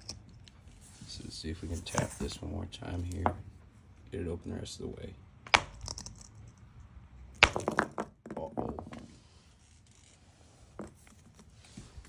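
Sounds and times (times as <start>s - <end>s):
hammer striking rock: 5.5s - 6.1s, 7.4s - 8.1s
rock pieces clattering on concrete: 5.5s - 6.4s, 7.4s - 9.0s.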